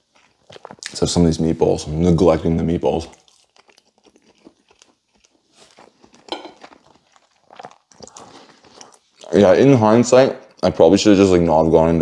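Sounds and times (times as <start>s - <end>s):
man chewing food: 0.0s - 1.3s, 2.8s - 10.7s.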